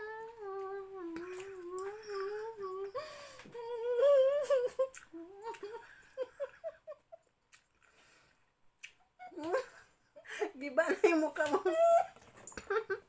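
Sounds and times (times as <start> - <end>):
woman humming: 0.0 - 6.5, 9.2 - 9.8
woman giggling: 4.2 - 7.2, 9.2 - 13.0.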